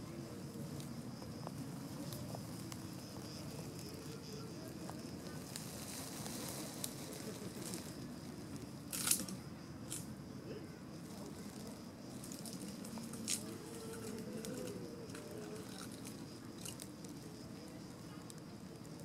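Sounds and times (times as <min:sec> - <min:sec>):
high insect drone: 0:00.0 - 0:19.0
light clicks and crackles: 0:12.2 - 0:19.0.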